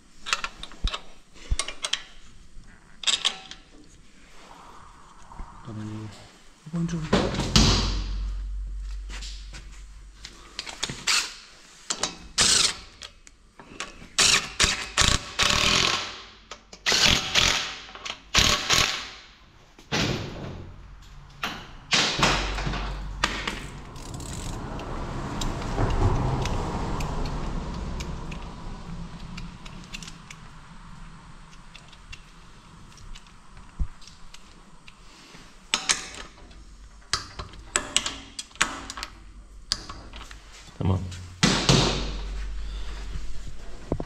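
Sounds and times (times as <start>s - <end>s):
steady mechanical noise: 3.8s - 19.0s, 19.9s - 44.0s
ratchet wrench clicking: 12.0s - 12.8s, 14.2s - 16.1s, 24.0s - 25.6s.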